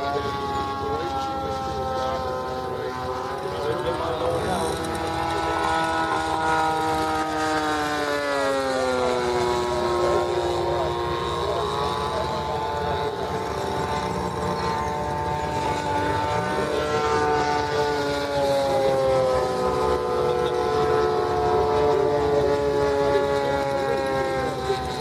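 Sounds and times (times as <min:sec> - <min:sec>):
model airplane motors whining: 0:00.0 - 0:25.0.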